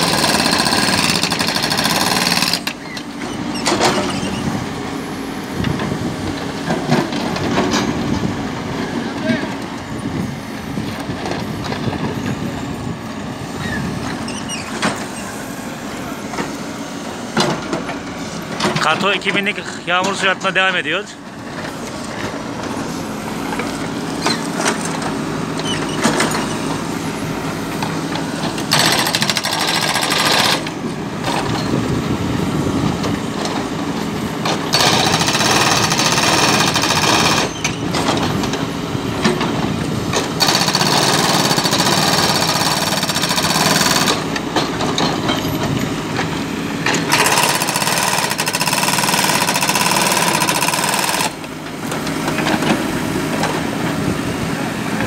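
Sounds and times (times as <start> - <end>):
hydraulic breaker hammering asphalt: 0.0 - 3.0, 27.8 - 31.7, 34.4 - 38.3, 39.2 - 54.0
diesel engines running: 0.0 - 55.0.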